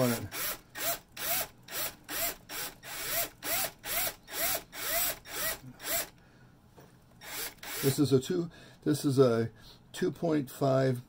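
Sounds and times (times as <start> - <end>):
cordless drill whirring: 0.0 - 6.2, 7.2 - 8.0.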